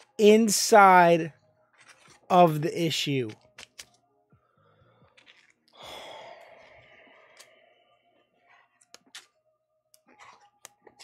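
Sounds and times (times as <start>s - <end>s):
comic book pages rustling: 1.7s - 4.0s, 5.0s - 5.6s
long breathy sigh: 5.8s - 7.5s.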